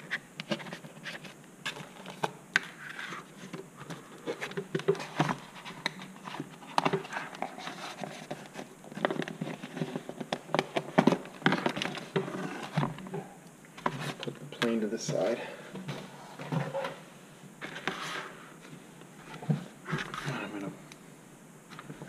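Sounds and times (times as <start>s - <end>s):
scratches and rustles on foam: 0.0s - 10.2s, 12.0s - 12.8s, 17.6s - 20.7s.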